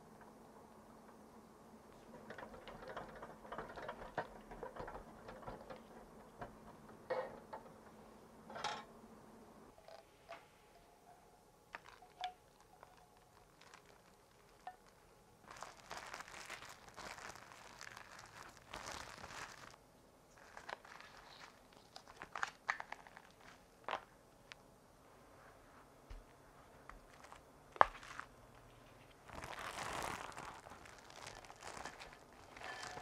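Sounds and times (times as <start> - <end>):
low steady hum: 0.0 - 33.0
cling film crinkling: 11.7 - 24.6, 27.0 - 33.0.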